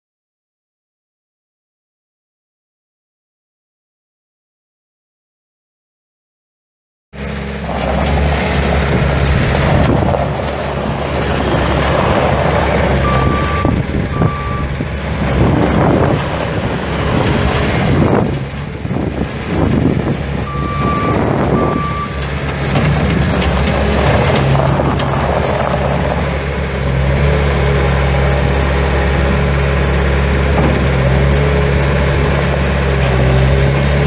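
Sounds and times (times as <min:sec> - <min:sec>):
diesel engine working: 0:07.2 - 0:34.0
backup alarm beeps: 0:13.0 - 0:14.8, 0:20.5 - 0:22.2.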